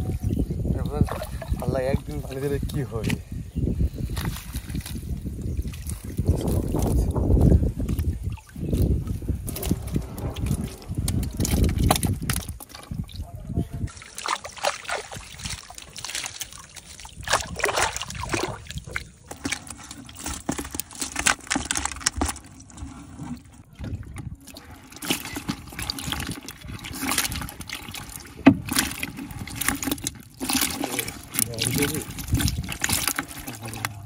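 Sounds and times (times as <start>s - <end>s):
fish slapping water: 0.0s - 3.1s, 4.1s - 34.0s
fish splashing in water: 7.8s - 13.3s, 13.9s - 34.0s.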